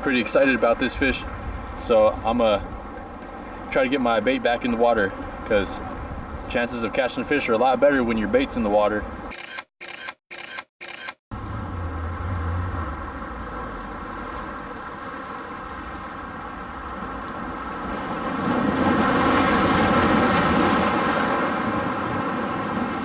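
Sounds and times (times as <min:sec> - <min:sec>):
camera shutter clicks: 0:09.3 - 0:11.2
surf washing on rocks: 0:14.9 - 0:23.0.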